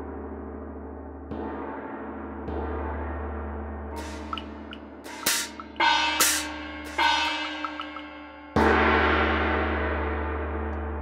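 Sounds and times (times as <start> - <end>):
cymbal crash ringing: 4.0 - 10.6
gongs and cymbals struck: 4.0 - 10.7.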